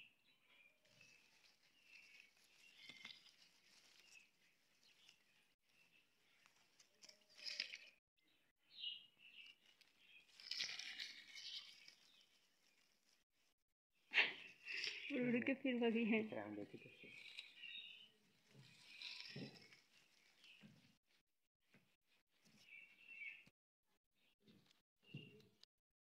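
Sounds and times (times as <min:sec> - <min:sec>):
leaves and dry grass rustling: 0:00.9 - 0:07.9, 0:09.4 - 0:13.2, 0:16.0 - 0:20.9.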